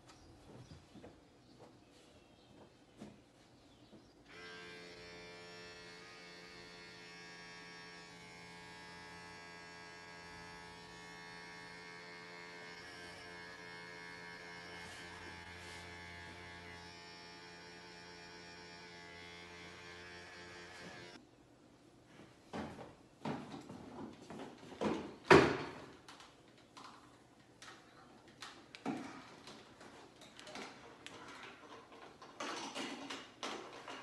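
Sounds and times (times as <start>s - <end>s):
electric hair clippers buzzing: 4.3s - 21.2s.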